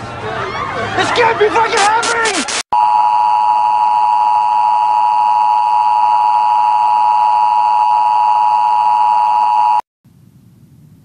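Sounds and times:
steady test tone beep: 2.8 - 9.8.

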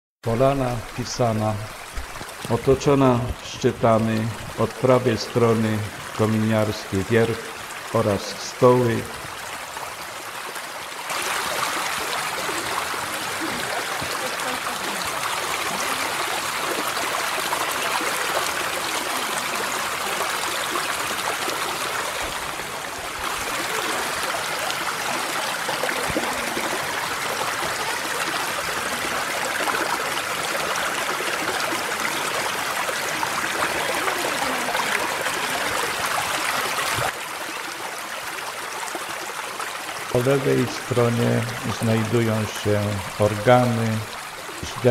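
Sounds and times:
mountain stream rushing over rocks: 0.2 - 44.9.

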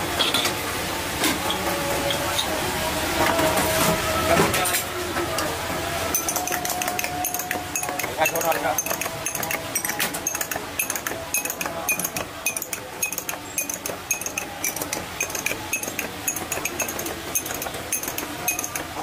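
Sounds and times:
metal spoon clinking on glass: 6.1 - 19.0.

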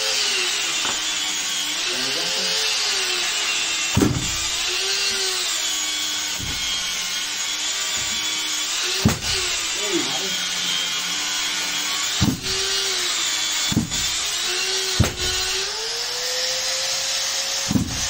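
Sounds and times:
sharp knock: 4.0 - 4.4.

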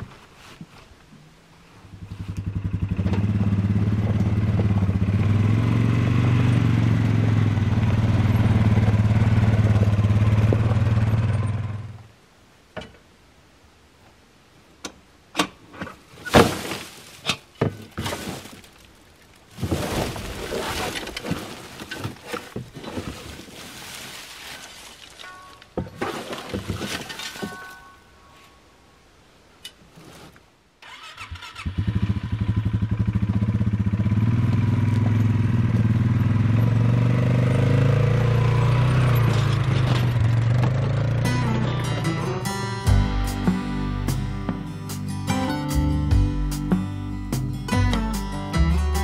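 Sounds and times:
atv engine running: 1.9 - 12.0, 31.5 - 42.3
brush and branches crashing: 15.9 - 28.4.

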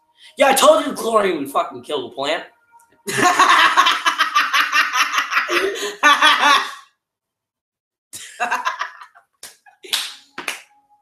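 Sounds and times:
boys laughing: 3.1 - 6.9, 8.2 - 9.3.

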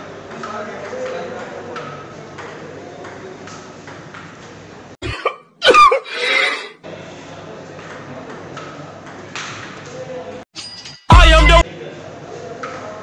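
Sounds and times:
loud vocal sound effect: 11.1 - 11.6.

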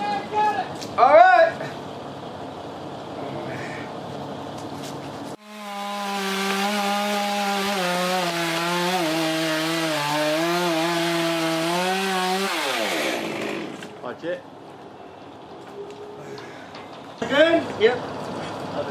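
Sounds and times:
chainsaw running at high revs: 5.4 - 14.0.

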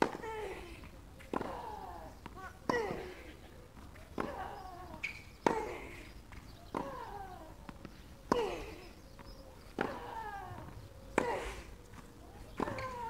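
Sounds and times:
racket hitting tennis ball: 1.3 - 3.4.

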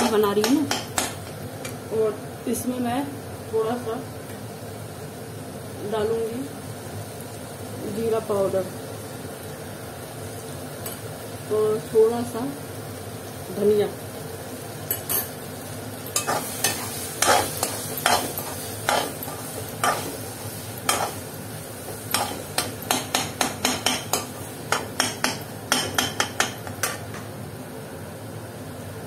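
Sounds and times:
frying sizzle: 0.0 - 29.0
spoon clinking against pan: 22.1 - 27.2.

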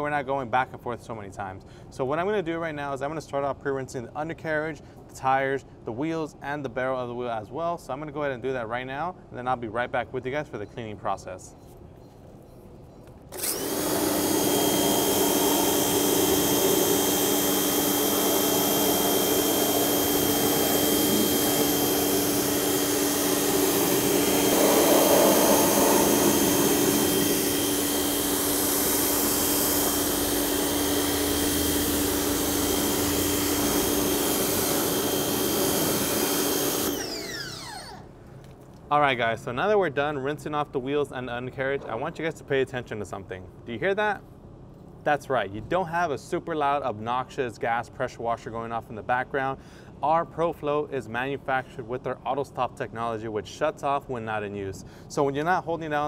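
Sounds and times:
pressure washer motor humming: 13.3 - 38.0
water jet hissing: 13.6 - 37.1.

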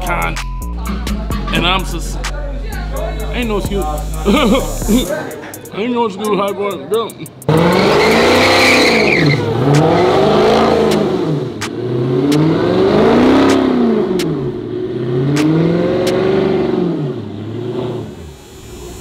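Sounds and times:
car engine revving: 0.0 - 19.0
tires spinning: 7.4 - 19.0
sharp cracks: 8.4 - 10.1, 13.4 - 14.4, 15.3 - 16.3.

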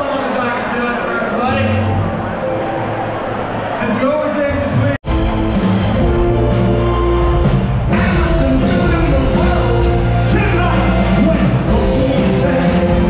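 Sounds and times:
live band playing: 4.5 - 13.0.

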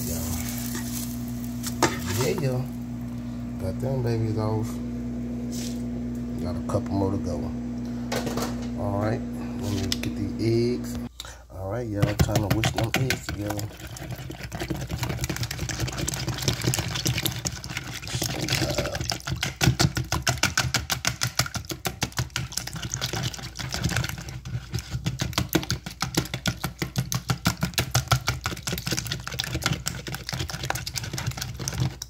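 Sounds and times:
whisk beating eggs in a bowl: 12.0 - 32.0.

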